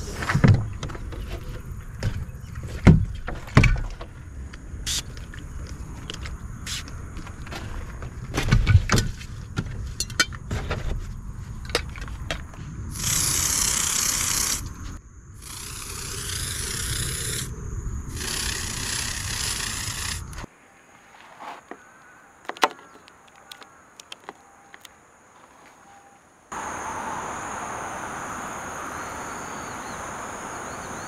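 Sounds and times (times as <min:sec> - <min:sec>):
handling clicks and rustles: 0:22.4 - 0:26.0.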